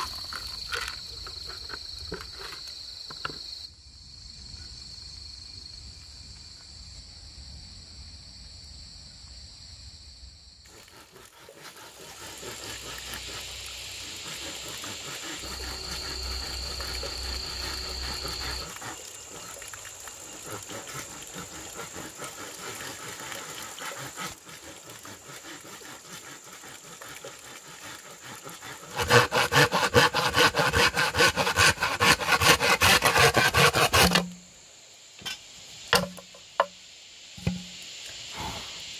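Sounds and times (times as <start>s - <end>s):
night insects chirring: 0.0s - 38.9s
knife sawing through bamboo: 10.7s - 19.6s, 20.4s - 34.3s.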